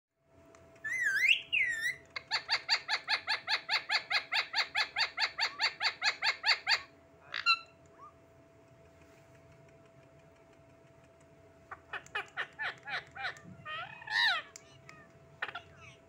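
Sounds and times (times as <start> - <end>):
parakeet calling: 0.8 - 8.1, 11.7 - 16.0.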